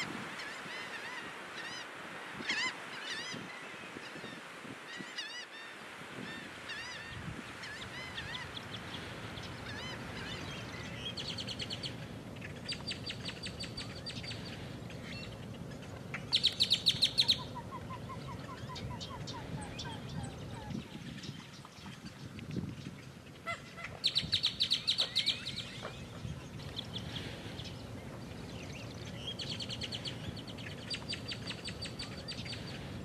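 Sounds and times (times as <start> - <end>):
marsh birds calling: 0.0 - 33.0.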